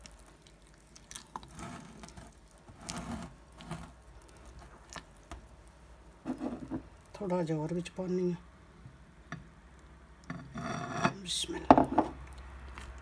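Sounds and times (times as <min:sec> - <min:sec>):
batter squelching: 0:00.0 - 0:07.5, 0:12.1 - 0:13.0.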